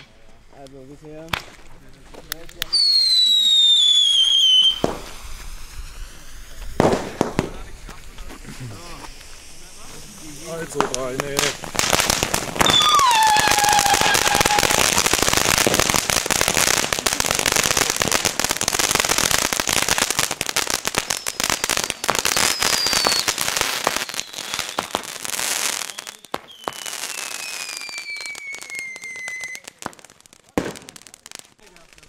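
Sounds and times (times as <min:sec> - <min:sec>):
firework fountain hissing and crackling: 0:00.0 - 0:32.0
falling whistles: 0:02.7 - 0:06.7, 0:12.6 - 0:15.0, 0:21.0 - 0:21.6, 0:22.3 - 0:25.0, 0:25.8 - 0:29.7.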